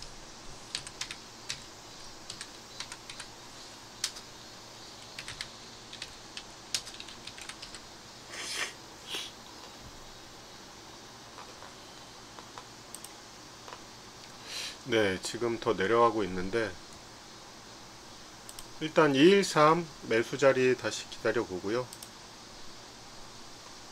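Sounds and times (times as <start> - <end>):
computer keyboard typing: 0.7 - 1.7, 2.3 - 3.3, 4.0 - 4.2, 5.0 - 7.8
short hissing sounds: 8.2 - 9.8, 14.3 - 14.9.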